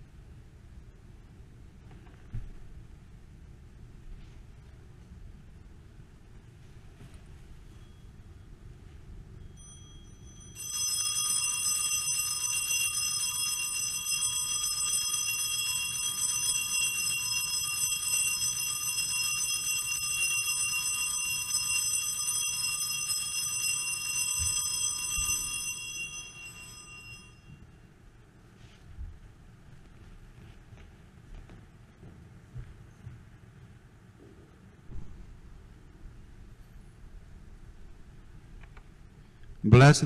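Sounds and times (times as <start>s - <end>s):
altar bells ringing: 9.4s - 27.8s.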